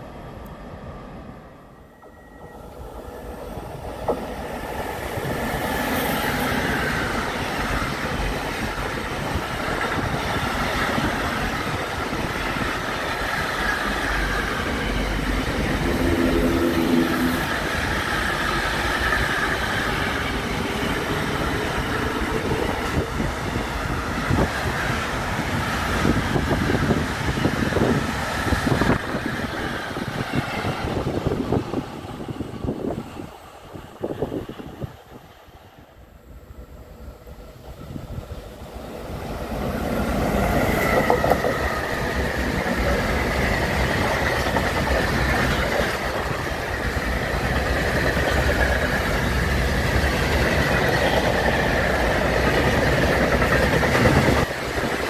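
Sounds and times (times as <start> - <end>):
steel wheels rushing on rail: 0.0 - 55.0
wheels clacking over rail joints: 40.0 - 55.0.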